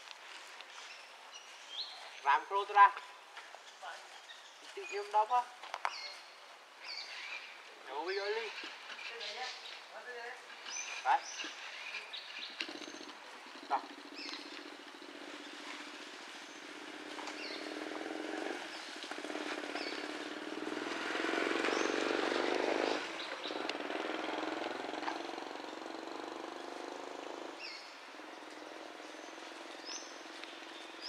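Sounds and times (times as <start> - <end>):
motor engine running: 19.0 - 31.0.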